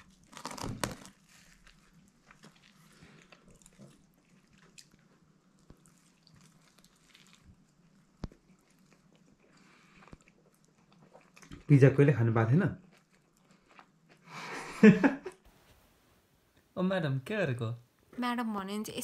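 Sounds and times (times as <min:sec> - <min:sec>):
person biting and chewing: 0:00.0 - 0:11.7, 0:12.8 - 0:14.3.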